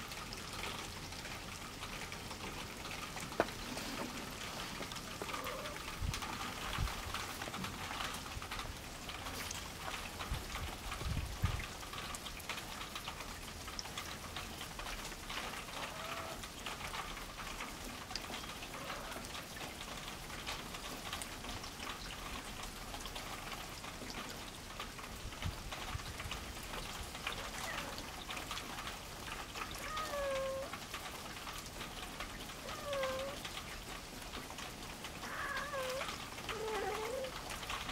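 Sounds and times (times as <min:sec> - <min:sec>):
faint crackle of fine ticks: 0:00.6 - 0:37.9
cats meowing softly: 0:05.1 - 0:05.9, 0:27.4 - 0:28.1, 0:29.7 - 0:30.8, 0:32.6 - 0:33.4, 0:35.2 - 0:37.4.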